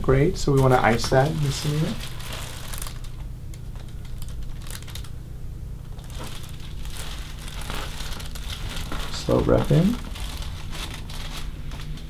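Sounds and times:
low room hum: 0.0s - 12.0s
paper sheet crinkling: 0.5s - 5.2s, 5.8s - 12.0s.

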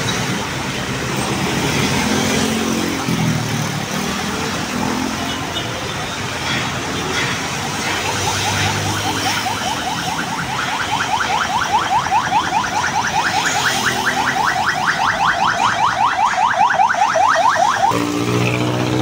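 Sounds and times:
street traffic: 0.0s - 19.0s.

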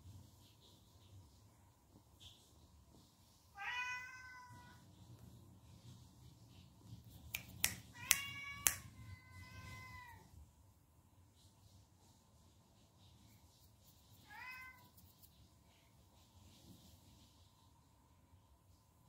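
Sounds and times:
cat meowing: 3.6s - 4.8s, 7.9s - 10.3s, 14.2s - 15.0s.

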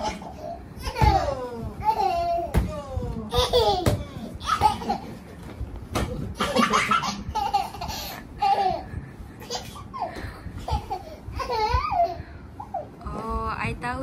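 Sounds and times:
toddler giggling: 3.3s - 5.2s, 6.4s - 12.8s.

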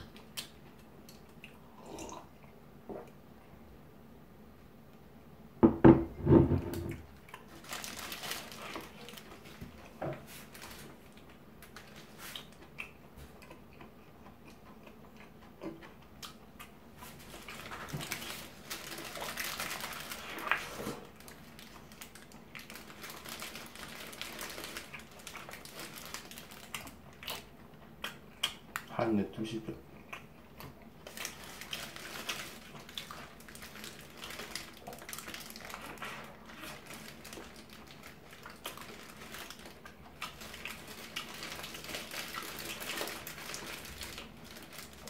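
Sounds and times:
paper wrapper crinkling: 7.5s - 12.4s, 17.1s - 27.0s, 31.0s - 45.0s.

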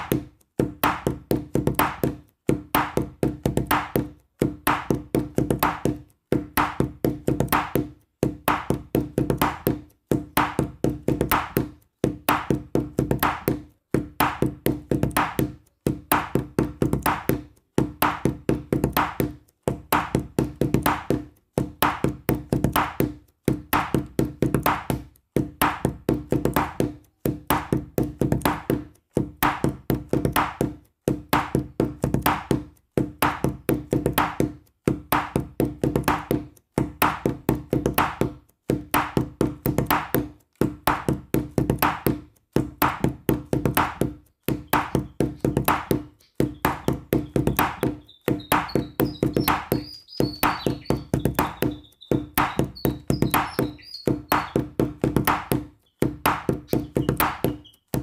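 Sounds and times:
looping tune of struck notes: 42.9s - 58.0s.

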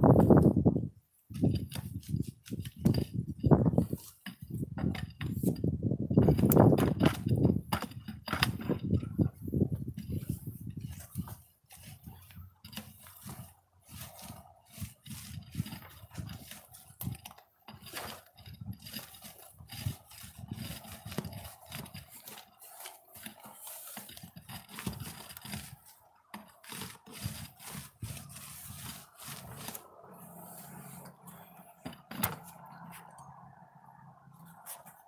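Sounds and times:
paint roller scraping on wall: 0.0s - 35.0s.

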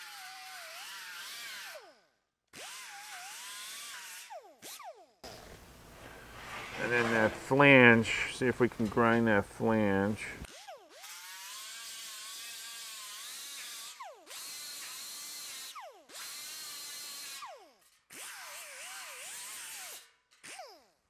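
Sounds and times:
angle grinder grinding steel: 5.2s - 15.7s.

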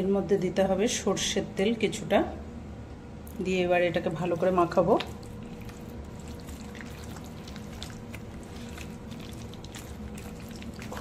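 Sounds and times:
faint steady hum: 0.0s - 11.0s
wet squelches of hand mixing: 3.3s - 11.0s.

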